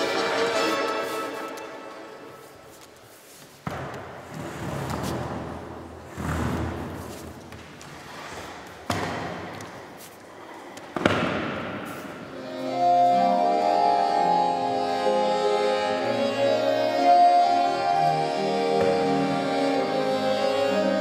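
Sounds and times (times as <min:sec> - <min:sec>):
accordion chords: 0:00.0 - 0:02.8, 0:12.2 - 0:21.0
knocks in reverberant hall: 0:08.8 - 0:09.9, 0:10.9 - 0:12.3.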